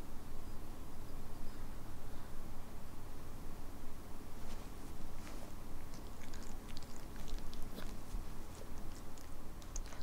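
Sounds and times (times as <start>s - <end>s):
dog licking and nibbling: 5.2s - 10.0s.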